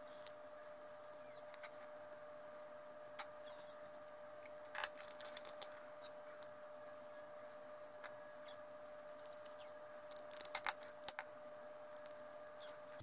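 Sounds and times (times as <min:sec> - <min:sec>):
plastic parts clicking and scraping: 0:04.7 - 0:05.8, 0:08.9 - 0:11.2, 0:11.9 - 0:13.0.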